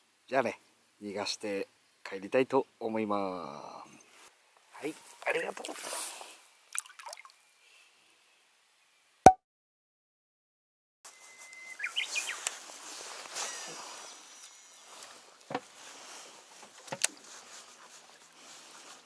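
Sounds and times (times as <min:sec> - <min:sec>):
lakeside outdoor ambience: 0:00.0 - 0:09.2, 0:11.1 - 0:19.0
bird chirping: 0:11.5 - 0:12.4.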